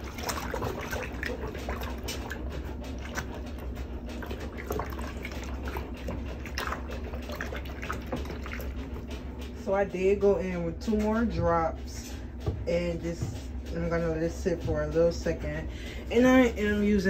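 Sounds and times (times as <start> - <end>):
water splashing in plastic bucket: 0.0 - 9.7.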